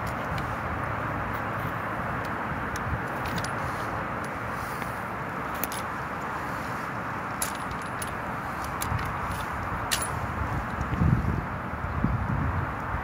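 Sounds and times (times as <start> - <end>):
rushing outdoor noise: 0.0 - 13.0
rifle metallic clicks and rattles: 2.2 - 3.6, 5.5 - 5.9, 7.3 - 10.9.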